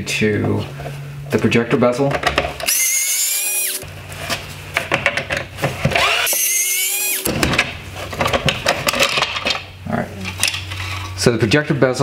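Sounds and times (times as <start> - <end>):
cordless screwdriver whining: 2.7 - 3.8, 6.0 - 7.3.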